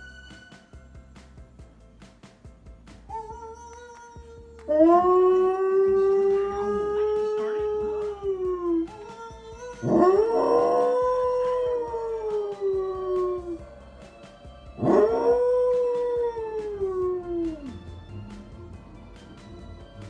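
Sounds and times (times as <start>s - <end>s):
music: 0.0s - 20.0s
dog howling: 3.1s - 13.6s, 14.8s - 17.8s.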